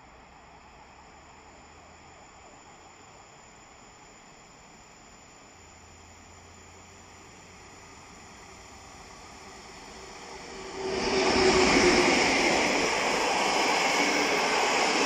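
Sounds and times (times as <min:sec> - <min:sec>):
electric locomotive passing: 0:00.0 - 0:15.0
train wheels rolling on rails: 0:07.1 - 0:15.0.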